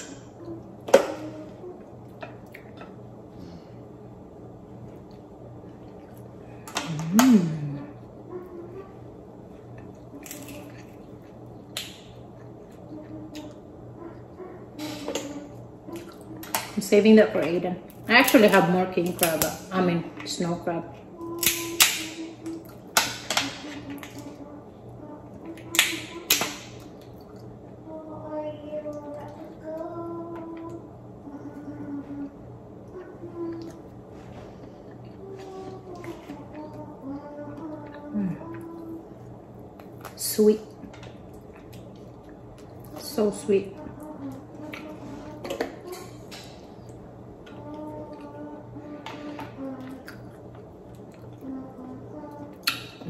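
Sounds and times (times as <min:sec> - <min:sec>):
person humming: 0:06.8 - 0:08.9, 0:35.0 - 0:39.2, 0:47.5 - 0:50.3, 0:51.4 - 0:52.8.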